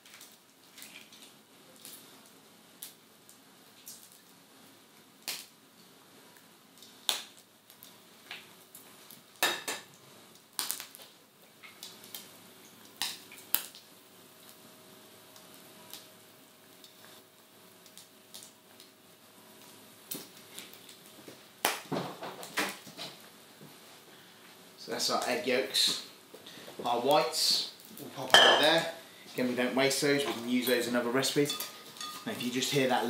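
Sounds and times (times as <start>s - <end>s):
bacon sizzling in a pan: 0.0s - 24.1s, 24.9s - 33.0s.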